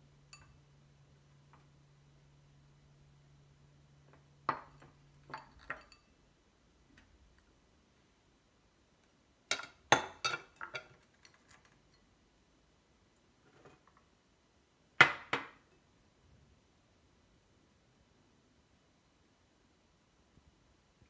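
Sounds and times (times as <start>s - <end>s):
glass bowls clinking: 0.3s - 0.6s, 4.5s - 6.2s, 9.5s - 11.0s.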